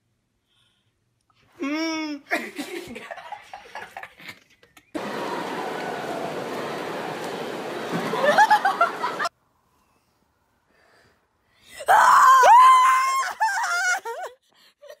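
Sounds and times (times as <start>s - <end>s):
crowd hubbub echoing: 5.0s - 9.3s.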